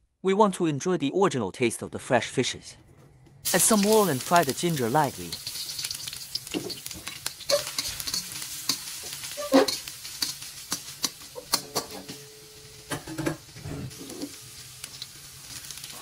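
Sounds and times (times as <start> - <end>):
metal tongs scraping a wok: 3.4 - 12.8, 13.4 - 16.0
ginger sizzling in hot oil: 3.4 - 16.0.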